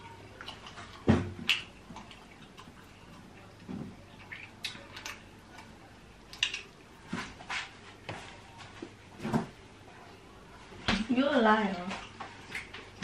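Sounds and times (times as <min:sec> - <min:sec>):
chewing: 0:00.0 - 0:07.7, 0:11.9 - 0:13.0.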